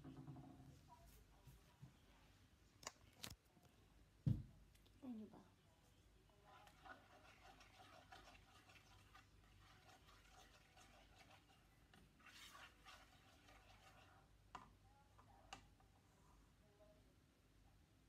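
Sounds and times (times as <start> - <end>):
spoon scraping frying pan: 6.4 - 14.3.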